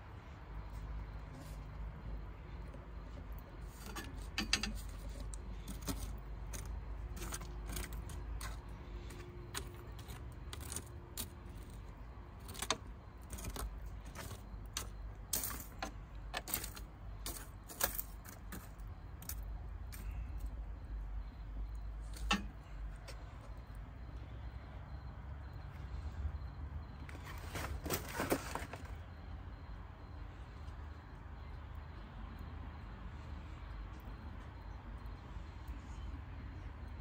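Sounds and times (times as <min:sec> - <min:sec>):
wood embers crackling and popping: 0:00.1 - 0:24.6.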